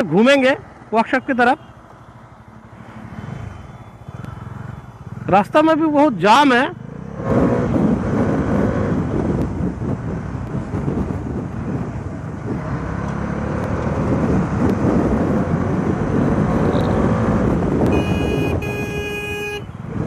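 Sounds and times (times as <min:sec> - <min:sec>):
road and wind noise: 0:00.0 - 0:20.0
motorcycle engine accelerating: 0:06.5 - 0:18.6
horn blasts: 0:17.8 - 0:19.7.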